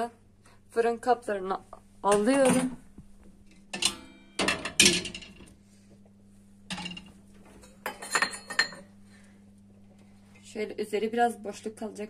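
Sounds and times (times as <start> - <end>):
glass pot lid clattering: 7.8 - 8.8.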